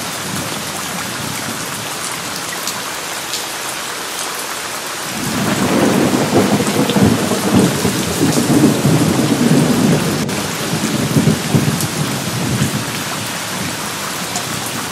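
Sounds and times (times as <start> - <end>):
steady rain: 0.0 - 14.9
thunder rumbling: 5.1 - 14.9.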